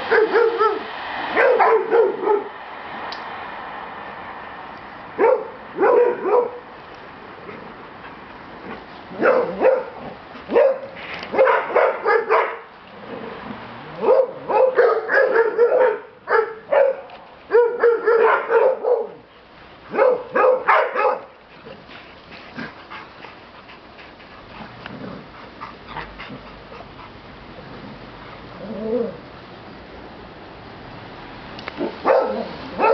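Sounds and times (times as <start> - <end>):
dogs barking and yipping: 0.0 - 2.6, 5.2 - 6.7, 8.6 - 12.7, 13.9 - 19.3, 19.9 - 27.3, 31.8 - 32.9.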